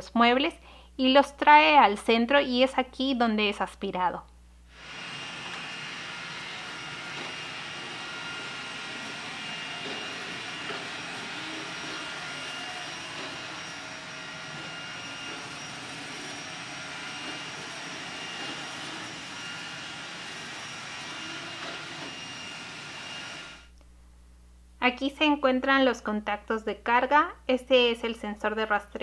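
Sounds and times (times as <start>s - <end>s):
thin high whine: 4.6s - 23.8s
robot vacuum whirring: 4.7s - 23.7s.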